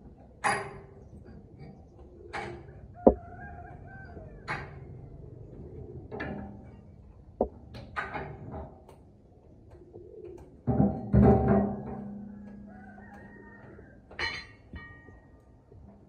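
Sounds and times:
metal knocking and clanking: 0.3s - 1.4s, 6.2s - 9.0s, 10.6s - 13.3s, 14.0s - 15.2s.

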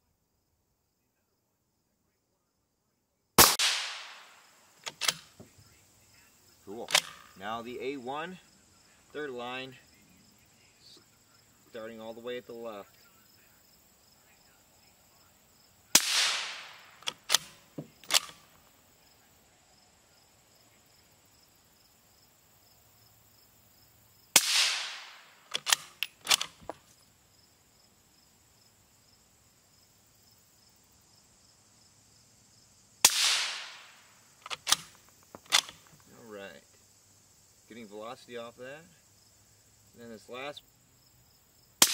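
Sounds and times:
sharp clicks: 3.4s - 5.4s, 6.8s - 7.3s, 16.0s - 18.6s, 24.4s - 26.8s, 33.1s - 36.1s
suppressed rifle shots: 3.4s - 5.5s, 6.9s - 7.3s, 15.9s - 18.6s, 24.4s - 26.8s, 33.0s - 35.9s.

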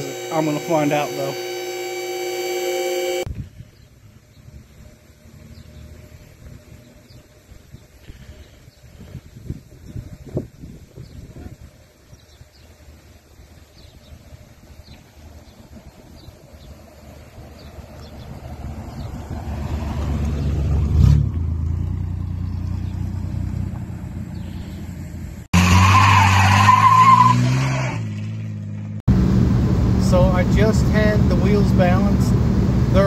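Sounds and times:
truck engine passing: 16.5s - 33.0s
engine revving hard: 18.5s - 23.2s, 25.6s - 28.2s
tire squeal: 25.6s - 28.4s.

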